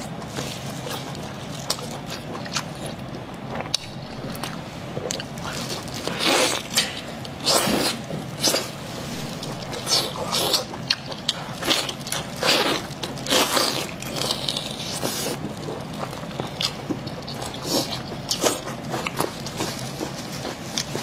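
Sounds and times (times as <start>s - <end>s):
chewing: 0.0s - 21.0s.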